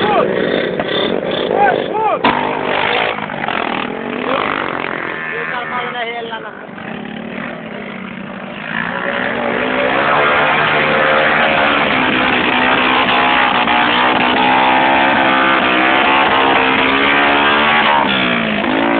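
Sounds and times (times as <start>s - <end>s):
dirt bike engine revving: 0.0s - 18.9s.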